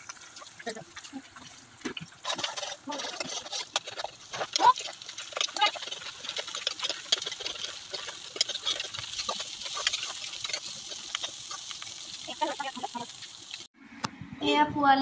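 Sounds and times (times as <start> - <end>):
food sizzling: 0.0 - 13.7
spatula scraping a wok: 2.2 - 13.7.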